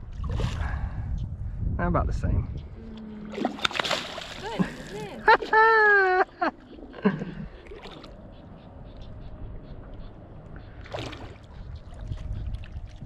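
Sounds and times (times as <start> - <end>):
wind and handling rumble: 0.0 - 13.0
water splashing: 3.1 - 5.6, 6.7 - 8.2, 10.8 - 13.0.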